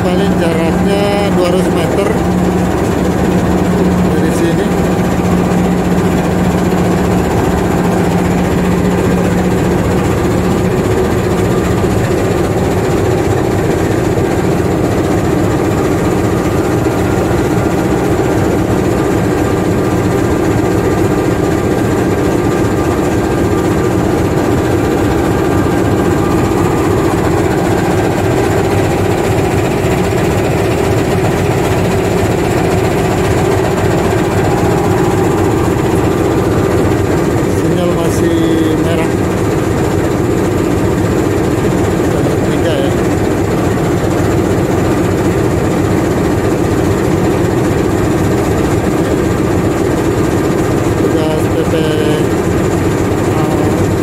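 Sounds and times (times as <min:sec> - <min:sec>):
diesel train engine idling: 0:00.0 - 0:54.0.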